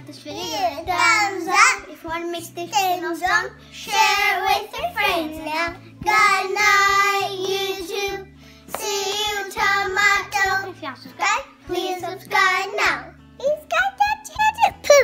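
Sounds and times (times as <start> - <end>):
young children singing: 2.9 - 10.7, 11.3 - 13.1.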